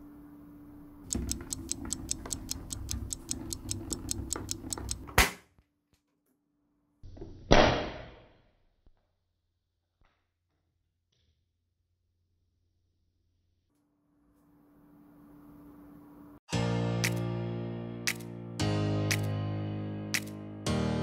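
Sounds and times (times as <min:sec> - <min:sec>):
fast clock-like ticking: 0:01.1 - 0:05.1.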